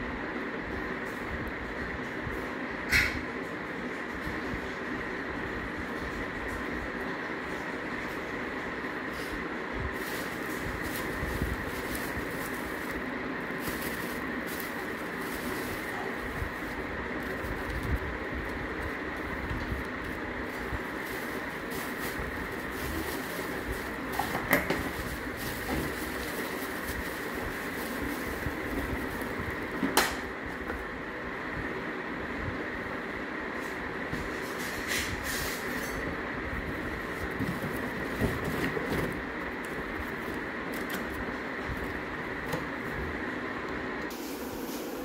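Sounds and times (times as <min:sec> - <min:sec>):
bubble wrap crinkling: 0:09.9 - 0:29.8, 0:36.7 - 0:43.0.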